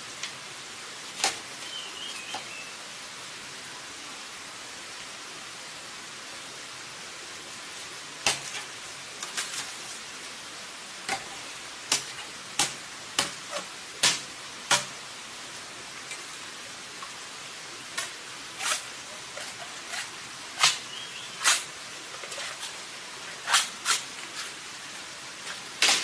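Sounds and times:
steady hiss: 0.0 - 26.0
digging tool striking ground: 8.3 - 8.6, 11.1 - 14.9, 20.6 - 20.8.

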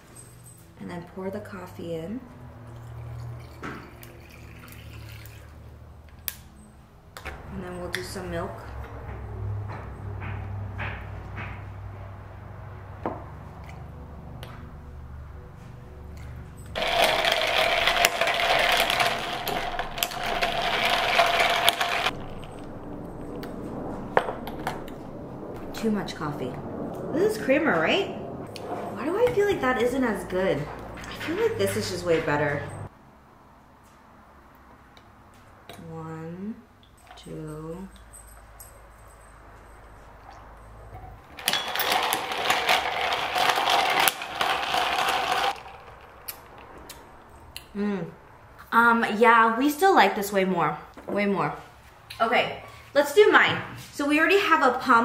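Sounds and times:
clinking and rattling: 16.5 - 23.4, 36.9 - 47.5
small electric motor whirring: 16.8 - 22.2.

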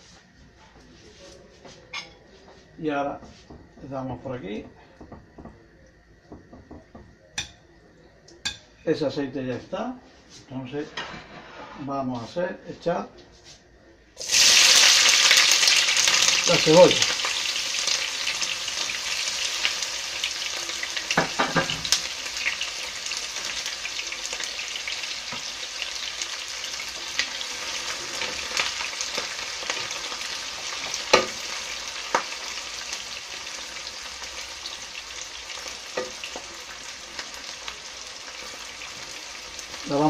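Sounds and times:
onion sizzling in hot oil: 14.2 - 40.0.

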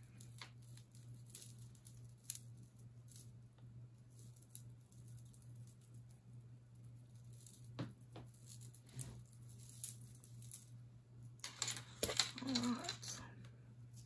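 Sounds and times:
jewelry chains clinking: 0.0 - 3.4, 7.1 - 10.8, 11.4 - 13.3.

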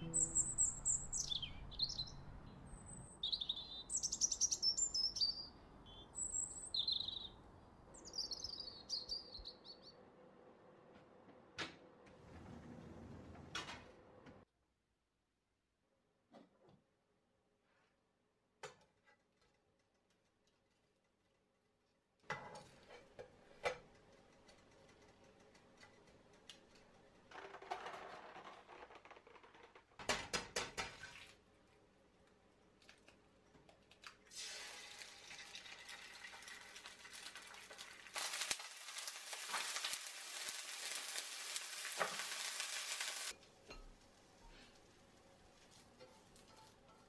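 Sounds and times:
food sizzling in oil: 34.3 - 43.4.

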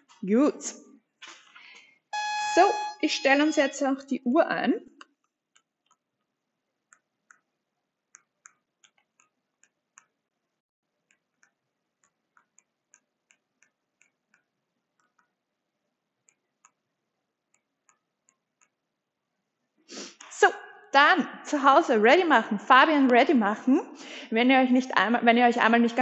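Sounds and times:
timer buttons clicking: 2.2 - 3.6.

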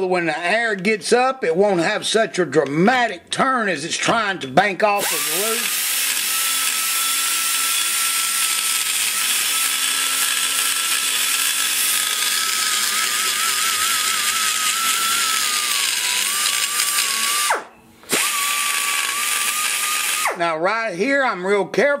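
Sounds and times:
die grinder whining: 5.0 - 20.5.

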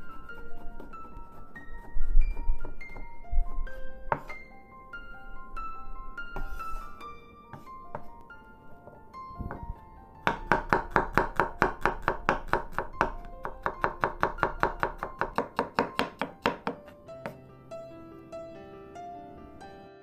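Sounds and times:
soft background music: 0.0 - 20.0
knife chopping on wooden board: 10.3 - 17.4.

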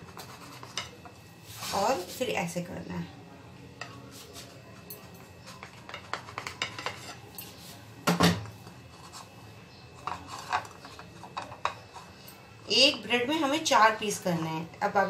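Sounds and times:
knife cutting bread on a plate: 0.0 - 2.2, 3.8 - 7.8, 8.4 - 12.4.

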